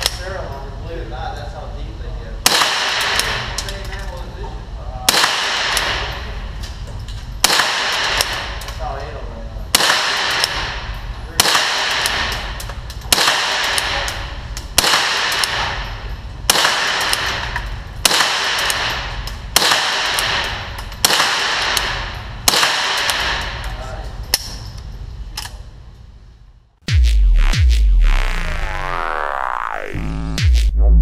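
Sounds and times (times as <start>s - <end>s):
gunshots echoing indoors: 2.4s - 3.7s, 5.0s - 6.5s, 7.4s - 8.8s, 9.7s - 24.6s.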